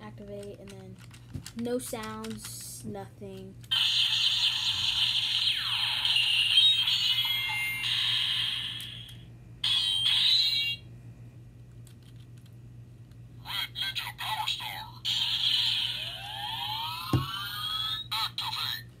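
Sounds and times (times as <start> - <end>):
toy electronic sound effects: 3.7 - 10.8, 15.1 - 18.8.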